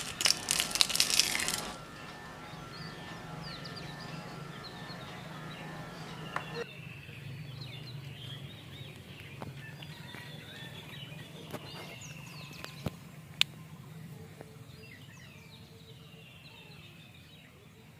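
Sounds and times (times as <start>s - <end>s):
steady low hum: 0.0s - 9.6s
small birds chirping: 0.0s - 17.9s.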